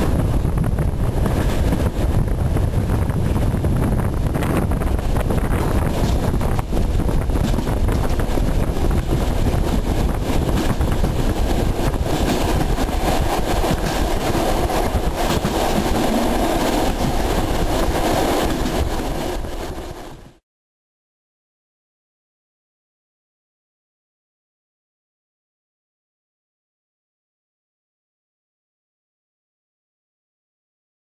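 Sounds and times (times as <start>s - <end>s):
freight train rumbling past: 0.0s - 20.4s
wheel and rail clatter: 0.0s - 20.4s.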